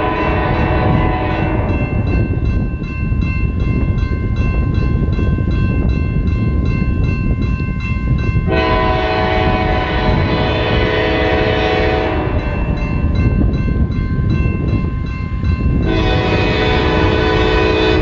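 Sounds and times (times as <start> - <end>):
locomotive horn chord: 0.0 - 2.1, 8.5 - 12.8, 15.8 - 18.0
crossing bell ringing: 0.0 - 18.0
locomotive rumble: 0.0 - 18.0.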